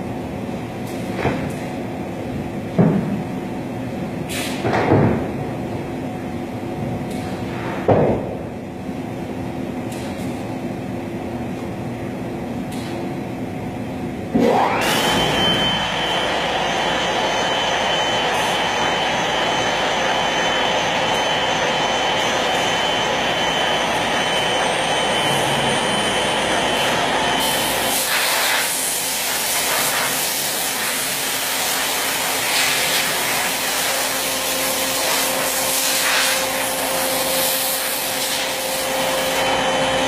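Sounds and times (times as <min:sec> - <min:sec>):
cnc router humming: 0:14.3 - 0:28.1, 0:30.2 - 0:40.0
spindle whine: 0:14.3 - 0:28.1, 0:38.4 - 0:40.0.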